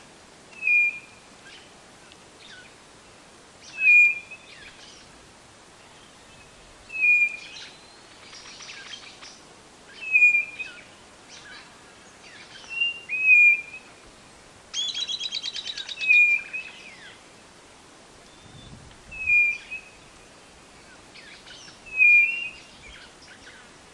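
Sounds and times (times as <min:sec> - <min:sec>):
bird whistling: 0:00.6 - 0:01.1, 0:03.7 - 0:04.4, 0:06.9 - 0:07.8, 0:10.0 - 0:10.8, 0:12.7 - 0:13.9, 0:14.8 - 0:16.8, 0:18.3 - 0:20.0, 0:21.9 - 0:22.7.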